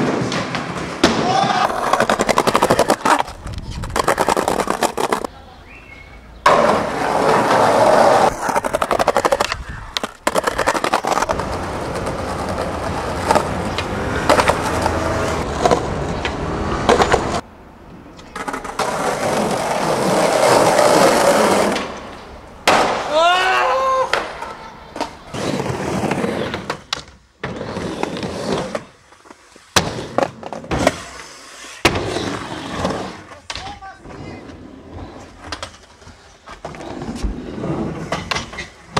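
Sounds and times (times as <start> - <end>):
skateboard clacks: 0.0 - 5.3, 6.4 - 17.4
skateboard wheels rolling on concrete: 0.0 - 38.9.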